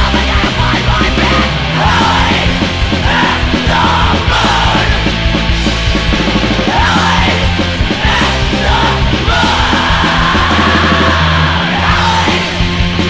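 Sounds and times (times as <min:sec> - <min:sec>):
punk band playing loudly: 0:00.0 - 0:13.0
vocalist yelling: 0:06.6 - 0:12.6.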